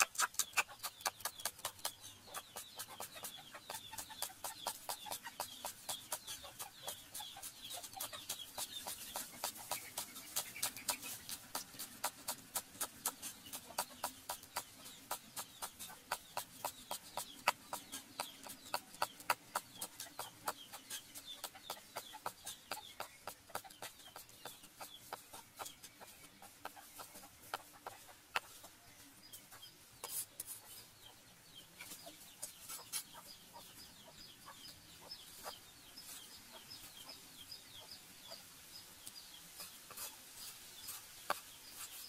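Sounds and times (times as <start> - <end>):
cleaver chopping on wooden board: 0.0 - 25.7.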